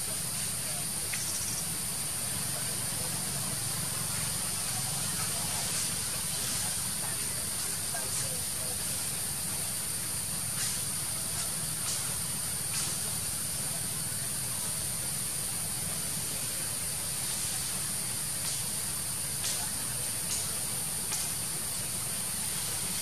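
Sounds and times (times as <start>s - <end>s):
constant hiss: 0.0s - 23.0s
high-pitched insect drone: 0.2s - 2.5s.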